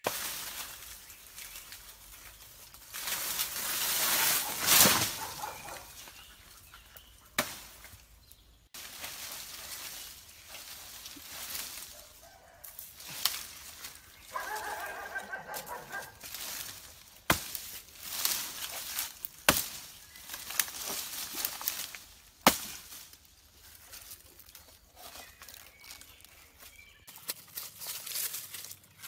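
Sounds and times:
leaves rustling: 0.0 - 29.0
machete chopping banana trunk: 7.4 - 7.8, 17.2 - 19.9, 20.5 - 23.0
chicken calling: 14.0 - 16.2.

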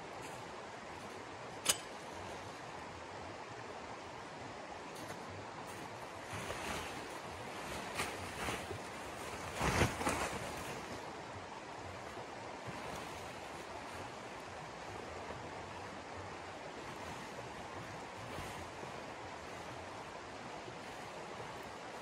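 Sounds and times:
tent fabric rustling and flapping: 4.9 - 22.0.

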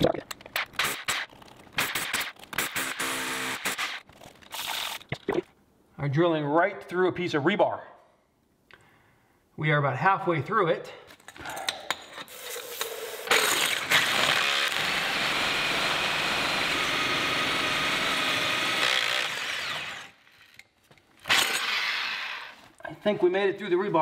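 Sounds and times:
core drill grinding through rebar: 0.8 - 5.0, 12.9 - 20.4, 21.2 - 22.7.

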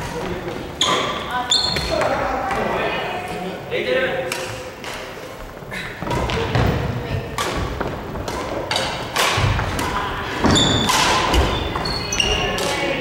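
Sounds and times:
shoe squeak: 0.8 - 2.1, 10.4 - 12.6.

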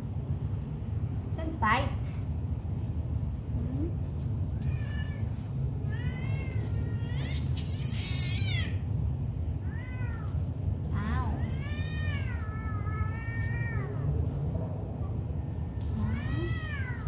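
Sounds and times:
cat meowing: 4.6 - 8.8, 9.6 - 10.4, 11.0 - 14.1, 15.9 - 17.0
cat yowling harshly: 5.9 - 8.9.

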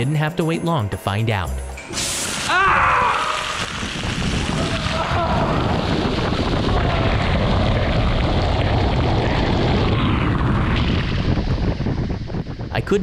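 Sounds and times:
roaring wind and water spray: 2.0 - 13.0
wind buffeting on microphone: 3.4 - 13.0.

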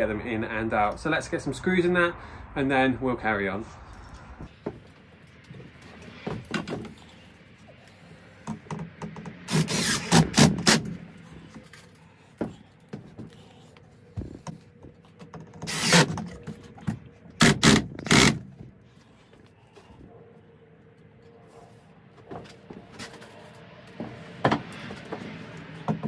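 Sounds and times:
cordless driver driving screws: 9.5 - 10.8, 15.6 - 16.1, 17.4 - 18.4.

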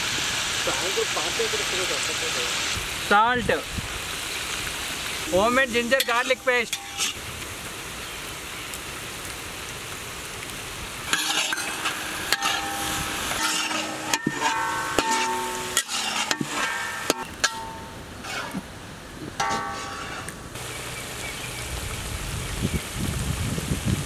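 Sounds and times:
vegetables sizzling in oil: 0.0 - 18.6
spatula scraping a wok: 6.0 - 7.2, 11.1 - 18.7, 19.4 - 20.4.

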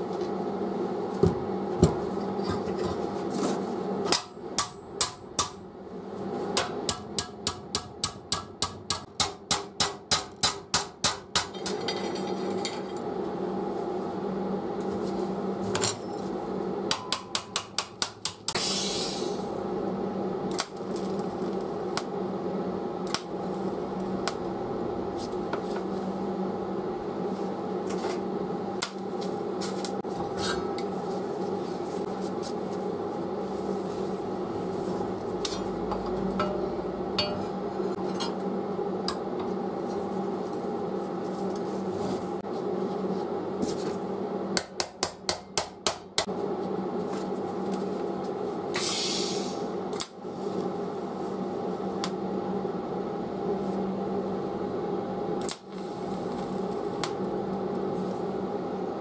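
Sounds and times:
steady hum: 0.0 - 59.0
short hiss: 48.8 - 49.6.

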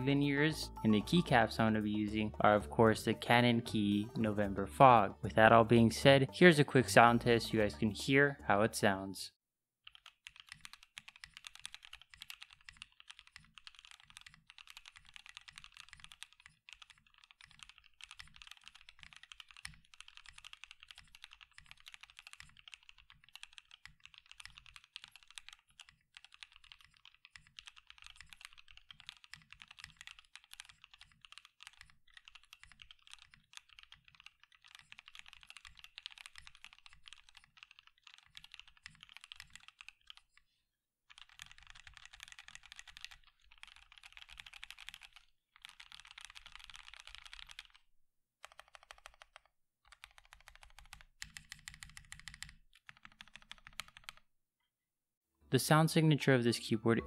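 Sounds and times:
mechanical keyboard typing: 9.9 - 40.4, 41.1 - 54.2.

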